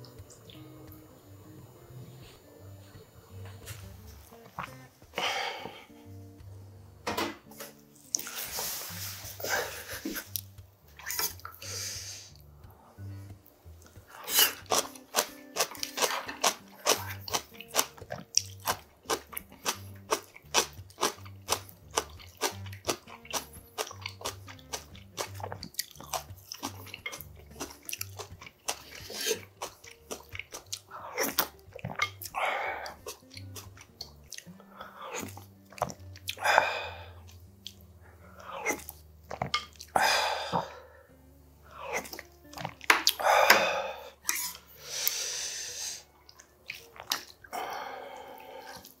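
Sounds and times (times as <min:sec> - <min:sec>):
slurping broth from wooden spoon: 0:08.1 - 0:12.4, 0:14.1 - 0:17.9, 0:28.7 - 0:29.5
wet mouth clicks: 0:10.1 - 0:11.7, 0:13.8 - 0:34.5, 0:35.1 - 0:36.4, 0:38.4 - 0:40.7, 0:41.8 - 0:43.6, 0:46.3 - 0:47.8
crunchy chewing: 0:13.8 - 0:40.0, 0:46.2 - 0:47.9.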